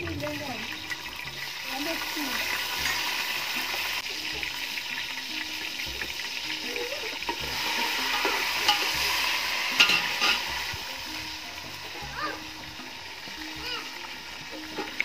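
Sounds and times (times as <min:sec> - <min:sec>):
food sizzling in a pot: 0:00.0 - 0:15.0
metal spoon clinking against pot: 0:07.2 - 0:09.0, 0:09.8 - 0:10.6.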